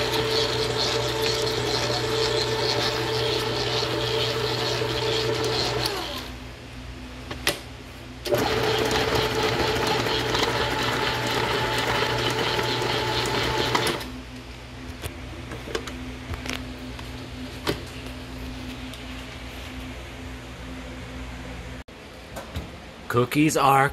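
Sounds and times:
stand mixer whirring: 0.0 - 6.4, 8.3 - 14.1.

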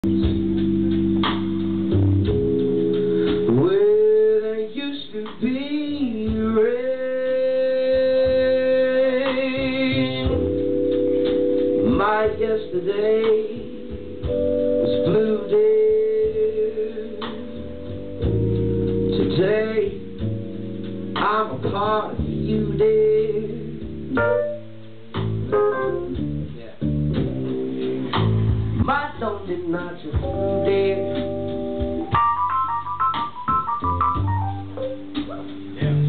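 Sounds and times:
guitar chords: 0.0 - 3.8, 9.8 - 16.2, 16.9 - 28.9, 30.2 - 36.0
sustained keyboard chords: 0.0 - 4.8, 5.8 - 36.0.

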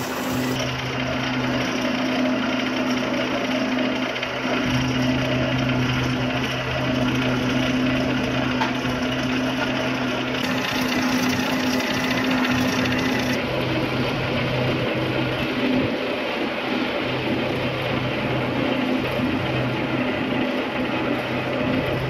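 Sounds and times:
machinery humming: 0.0 - 22.0
mechanical rattle: 10.4 - 13.4.

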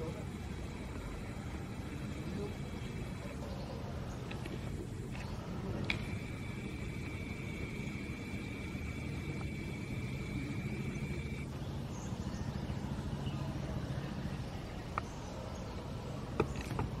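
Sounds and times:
thin high whine: 0.0 - 11.6
low background rumble: 0.0 - 17.0.

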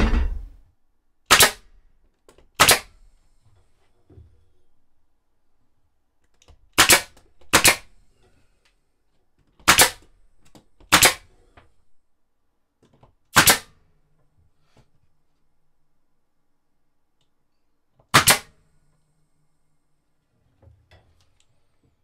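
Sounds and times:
nail gun firing: 1.3 - 1.7, 2.5 - 3.0, 6.7 - 7.9, 9.6 - 10.1, 10.9 - 11.3, 13.3 - 13.8, 18.1 - 18.6.

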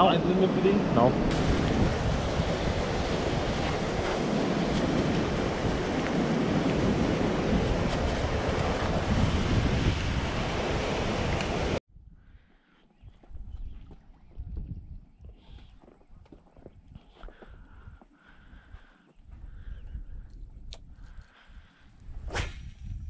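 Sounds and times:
wind buffeting microphone: 1.1 - 23.0.

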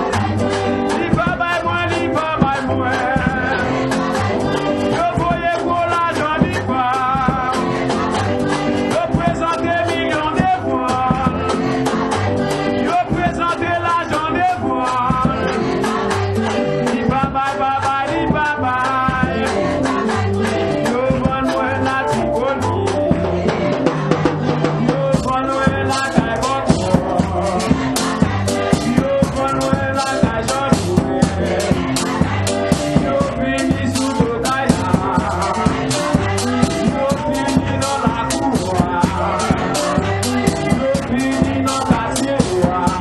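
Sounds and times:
instruments with steady beat: 0.0 - 43.0
person singing gospel song: 0.0 - 43.0.

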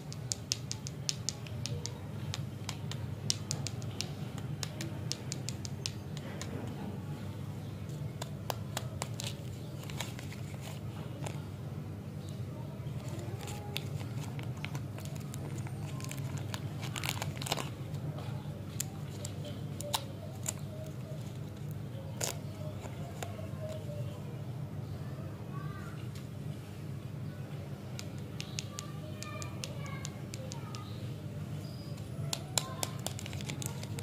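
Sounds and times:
plastic wrapper crinkling: 8.8 - 11.4, 13.0 - 18.0, 32.6 - 34.0.

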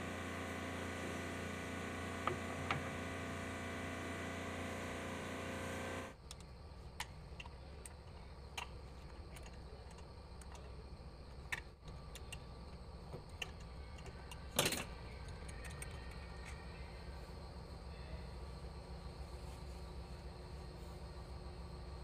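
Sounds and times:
steady hum: 0.0 - 6.2.

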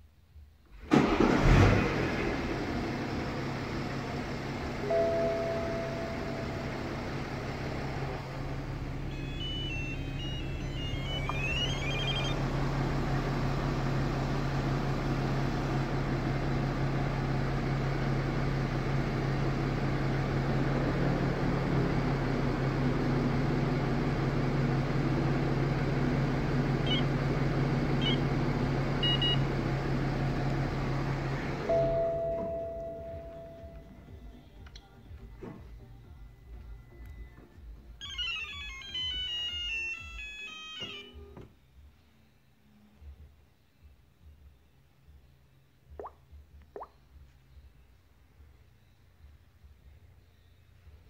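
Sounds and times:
car engine shutting off: 0.7 - 41.6
car engine idling: 0.8 - 38.3
electronic beeps: 9.0 - 12.5, 26.9 - 27.1, 28.0 - 28.2, 29.0 - 29.4, 38.0 - 41.3.

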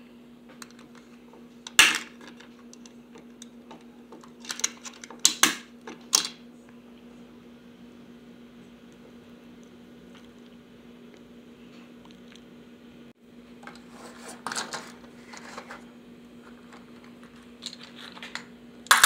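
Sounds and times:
steady low hum: 0.0 - 19.0
plastic toy parts clattering: 4.4 - 6.4, 14.1 - 15.8, 16.6 - 19.0.

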